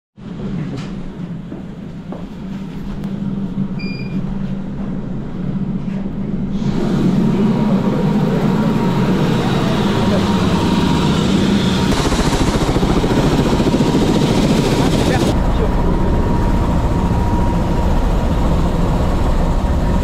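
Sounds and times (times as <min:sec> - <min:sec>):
helicopter engine hum: 0:01.6 - 0:20.0
short electronic beep: 0:03.8 - 0:04.2.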